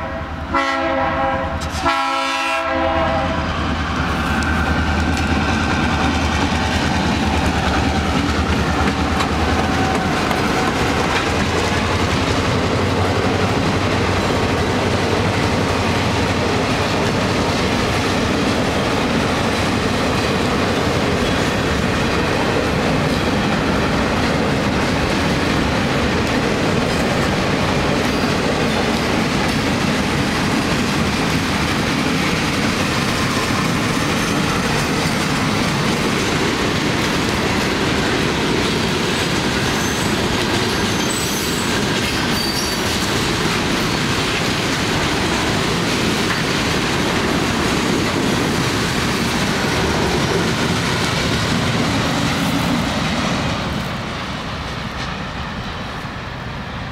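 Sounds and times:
freight train wheels clattering: 0:03.5 - 0:56.1.

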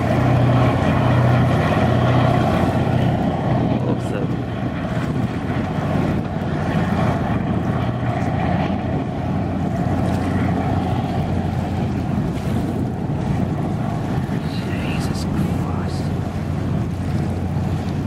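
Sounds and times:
diesel engines droning: 0:00.0 - 0:14.4
rush of spray: 0:00.0 - 0:18.0
wind noise on microphone: 0:00.0 - 0:18.0.

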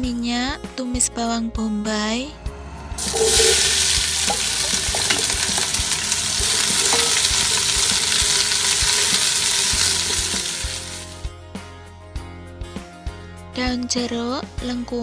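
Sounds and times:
onion sizzling in hot oil: 0:03.0 - 0:11.2.

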